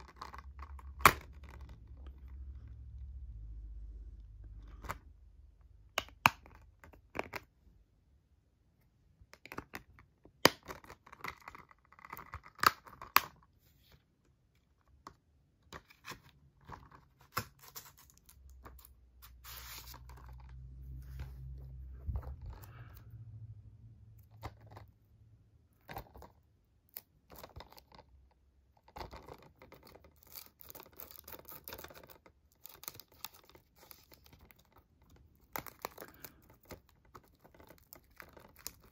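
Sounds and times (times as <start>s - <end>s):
shrink wrap crinkling and tearing: 15.9s - 20.7s, 28.9s - 38.9s.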